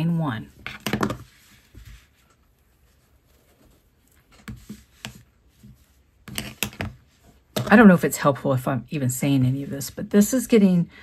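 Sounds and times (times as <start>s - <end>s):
hands brushing yarn on table: 0.2s - 7.9s.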